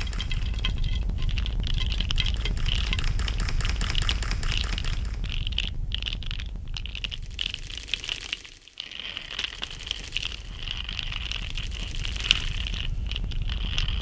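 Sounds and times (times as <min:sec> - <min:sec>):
low rumble: 0:00.0 - 0:08.4, 0:09.2 - 0:14.0
dense crackling: 0:00.0 - 0:14.0.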